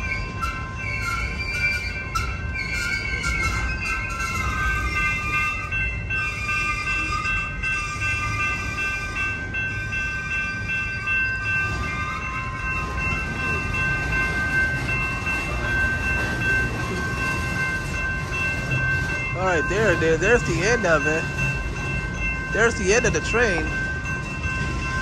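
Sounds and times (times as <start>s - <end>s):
high-pitched wheel squeal: 0.0s - 9.2s
train wheels rumbling on rail: 0.0s - 25.0s.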